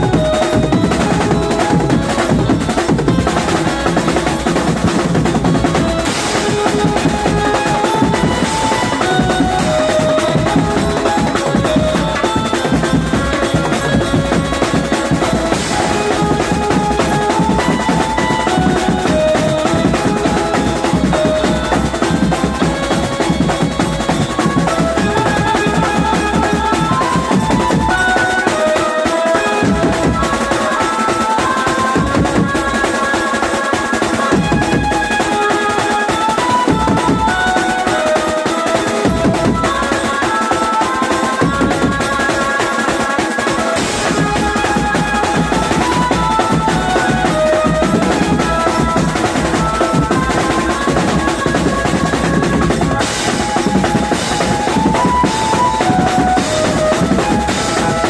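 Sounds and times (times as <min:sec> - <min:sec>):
drummers pounding drums: 0:00.0 - 0:58.0
melody of short held notes: 0:00.0 - 0:58.0.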